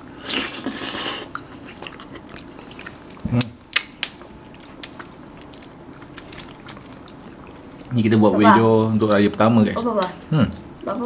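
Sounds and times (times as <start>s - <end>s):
chewing ice cream: 0.3s - 8.2s.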